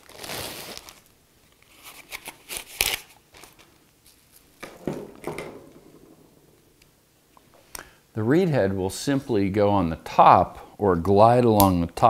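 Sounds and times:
plastic bag rustling and crinkling: 0:00.0 - 0:06.5.

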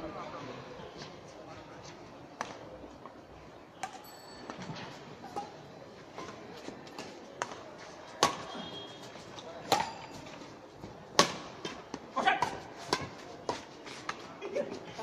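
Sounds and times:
racket striking shuttlecock: 0:08.2 - 0:08.7, 0:09.6 - 0:10.2, 0:11.1 - 0:13.6.

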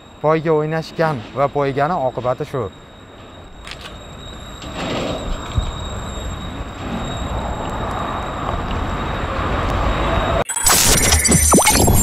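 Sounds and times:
passing road traffic: 0:06.5 - 0:10.4.

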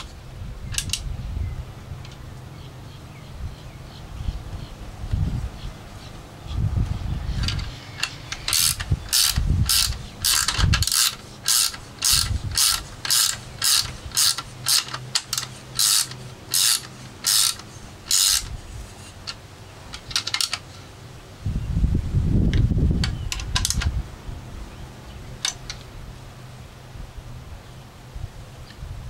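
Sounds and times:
hand ratchet clicking: 0:07.4 - 0:18.6.

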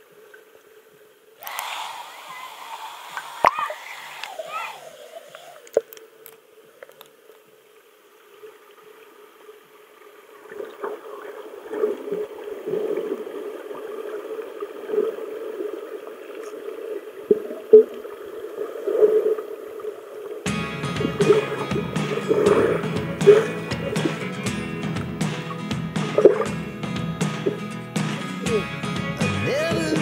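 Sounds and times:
muffled water churning: 0:01.4 - 0:06.1, 0:10.1 - 0:27.7.

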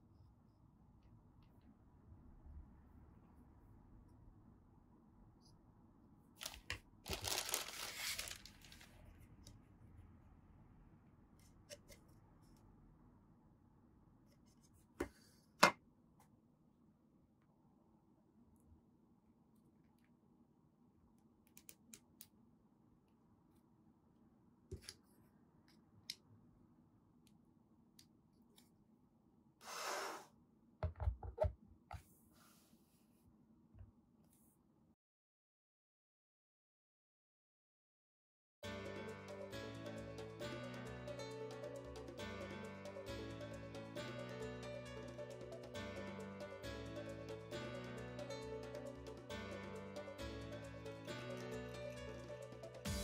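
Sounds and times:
plastic bag crinkling: 0:06.4 - 0:09.1
plastic base knocking on table: 0:30.8 - 0:31.5.

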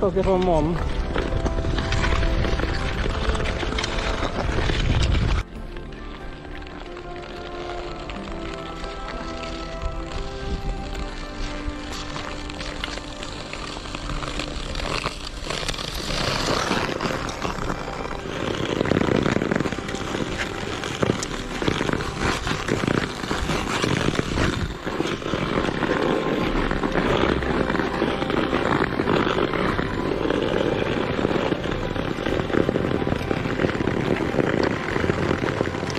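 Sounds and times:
ice skates scraping on ice: 0:00.0 - 0:35.9
pole tips clicking on ice: 0:00.1 - 0:35.9.

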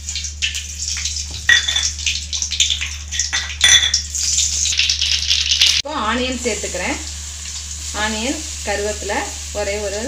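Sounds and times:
seeds crackling in hot oil: 0:00.0 - 0:10.0
metal spoon clinking on pan: 0:01.5 - 0:02.0, 0:03.1 - 0:04.1.

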